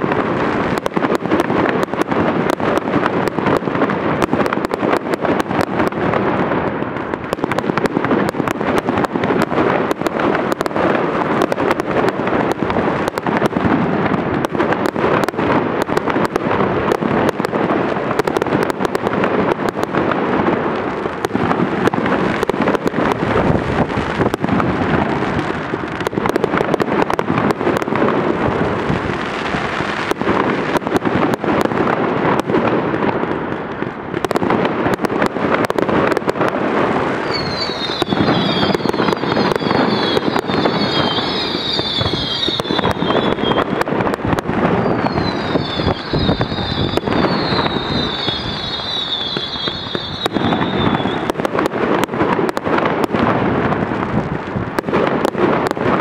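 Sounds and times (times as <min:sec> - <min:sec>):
fireworks bursts and bangs: 0:00.0 - 0:56.0
falling high whistles: 0:37.3 - 0:38.9, 0:44.9 - 0:51.2.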